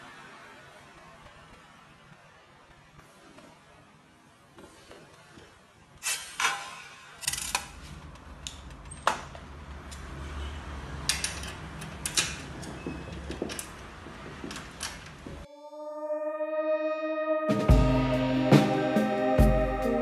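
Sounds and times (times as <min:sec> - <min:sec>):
metal parts clicking and knocking: 0:06.0 - 0:10.2, 0:11.0 - 0:15.2.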